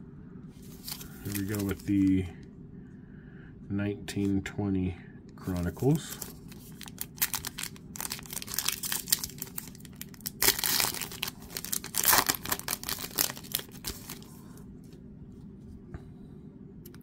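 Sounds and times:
foil wrapper tearing and crinkling: 0.7 - 2.1, 5.9 - 14.3.

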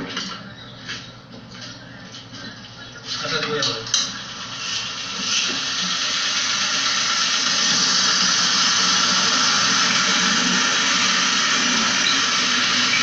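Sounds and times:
pressure washer spraying metal fins: 4.2 - 13.0.

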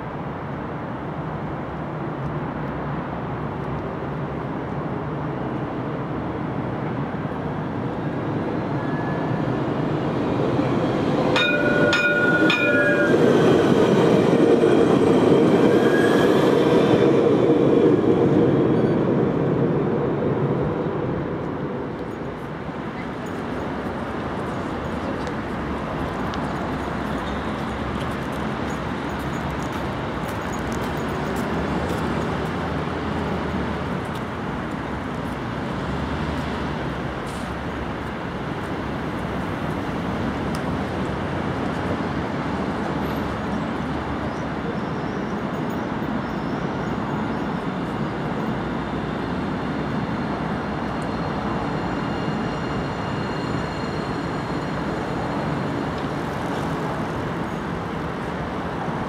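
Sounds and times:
bus passing: 0.0 - 59.0
street traffic noise: 0.0 - 59.0
tram rolling along track: 0.0 - 59.0.

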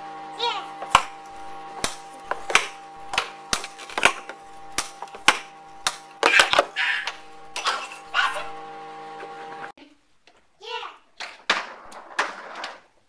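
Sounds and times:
steady hum: 0.0 - 9.7
ball or puck clacking: 1.8 - 7.7.

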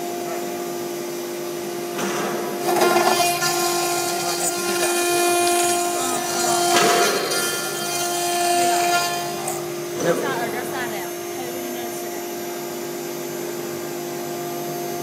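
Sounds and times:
cutter cutting metal: 2.5 - 12.1
router spindle whining: 2.6 - 15.0.

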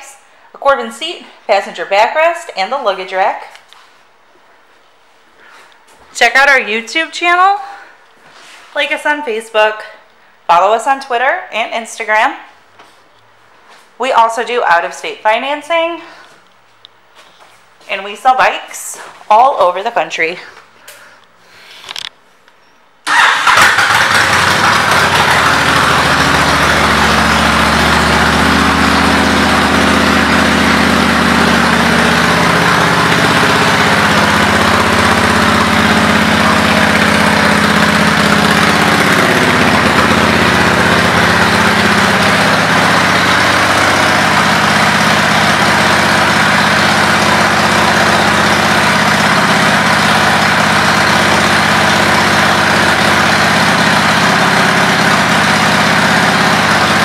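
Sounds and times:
motorcycle engine starting and idling: 23.0 - 57.0.

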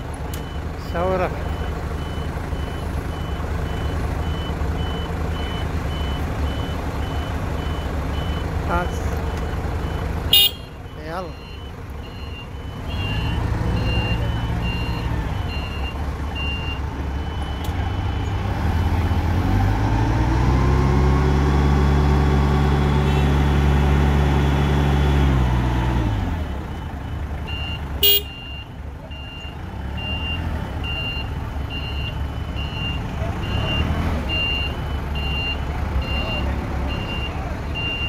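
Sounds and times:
reversing beeper: 9.3 - 18.4, 26.3 - 38.0
forklift engine revving: 11.3 - 38.0.

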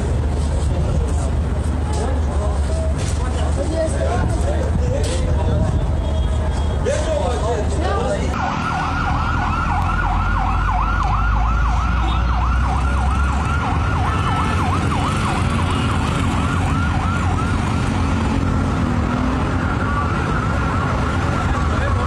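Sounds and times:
street traffic rumble: 0.0 - 22.0
siren yelping: 8.4 - 18.1, 19.6 - 22.0.

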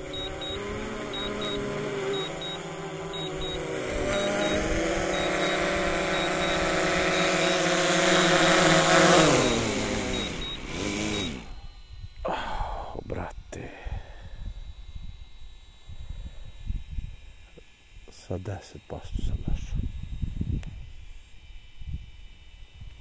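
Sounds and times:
short high warning beeps: 0.0 - 12.9
drone propellers buzzing: 0.0 - 23.0.

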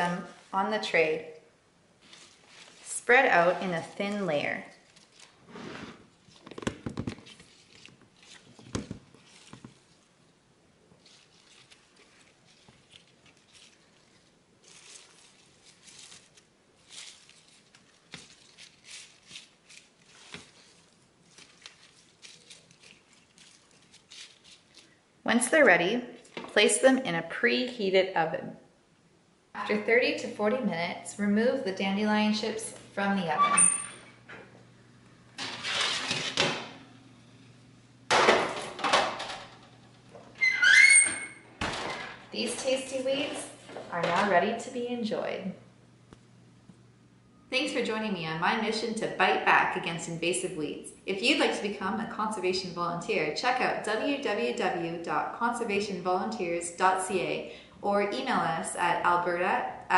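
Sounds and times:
greens rustling and crinkling: 2.0 - 6.5, 7.2 - 25.0
metal baking sheet scraping: 2.1 - 6.2, 32.4 - 34.2, 35.4 - 36.9, 38.1 - 44.7.

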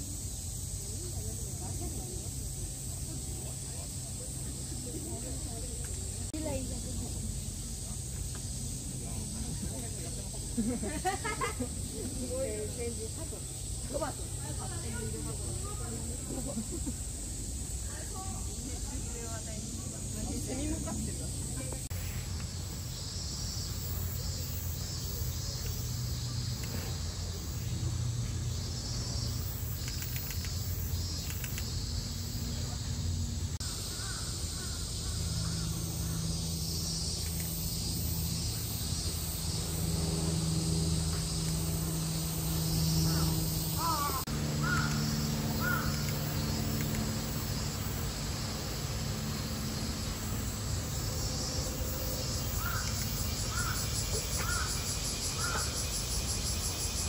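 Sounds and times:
high-pitched hiss: 0.0 - 57.0
low hum: 25.4 - 54.0
crows cawing: 43.1 - 46.1, 52.6 - 53.8, 54.4 - 54.8, 55.4 - 55.7.

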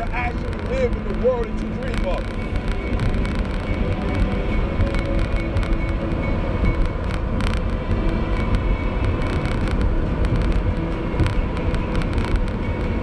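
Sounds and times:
car driving on paved road: 0.0 - 13.0.

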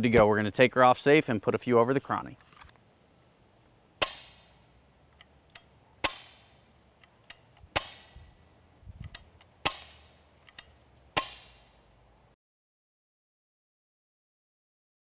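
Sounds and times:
air rifle shots: 4.0 - 4.6, 6.0 - 6.7, 7.4 - 8.3, 9.1 - 10.2, 11.2 - 11.8.

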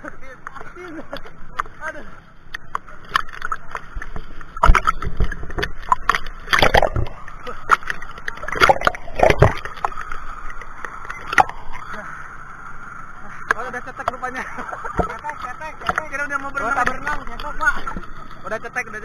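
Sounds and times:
underwater gurgling: 0.0 - 19.0
sea water sloshing and splashing: 2.6 - 18.5.

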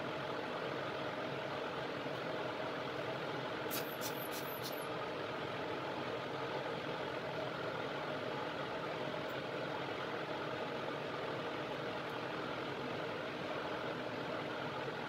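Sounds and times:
fan blower drone: 0.0 - 15.0.

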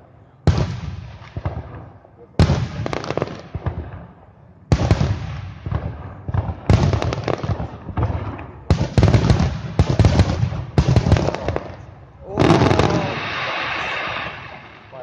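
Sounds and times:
firework bangs: 0.4 - 15.0
firework crackle: 4.8 - 15.0.

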